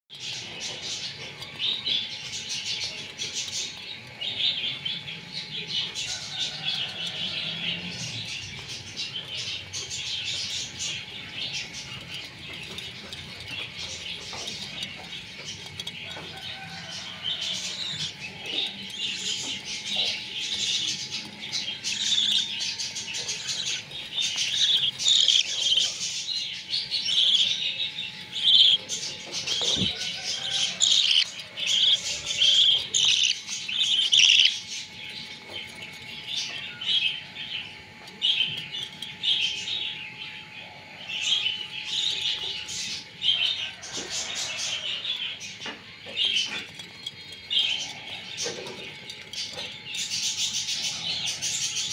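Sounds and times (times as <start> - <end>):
budgerigars chirping: 8.2 - 27.8, 28.4 - 34.8.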